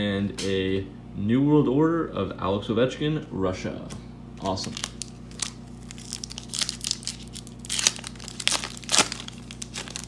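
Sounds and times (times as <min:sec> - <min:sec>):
foil wrapper tearing and crinkling: 0:04.4 - 0:10.0.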